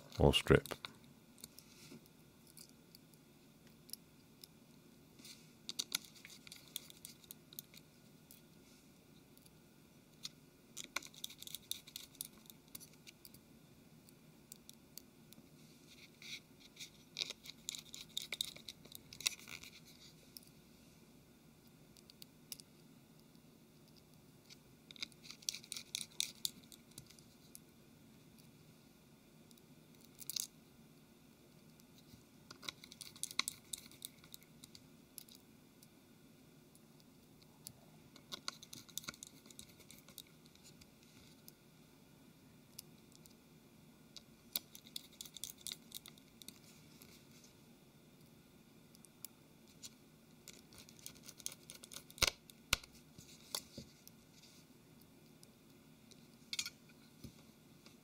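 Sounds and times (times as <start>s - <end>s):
screwdriver clicking and scratching: 5.7s - 8.4s, 10.2s - 13.4s, 16.2s - 20.0s, 24.9s - 27.3s, 32.5s - 35.4s, 38.2s - 40.8s, 44.5s - 46.6s, 50.5s - 53.7s.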